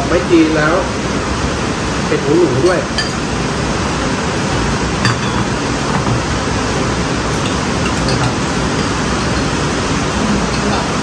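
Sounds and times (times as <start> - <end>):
loud steady hiss: 0.0 - 11.0
spoons clinking on ceramic bowls: 2.6 - 3.2, 5.0 - 6.3, 7.2 - 11.0.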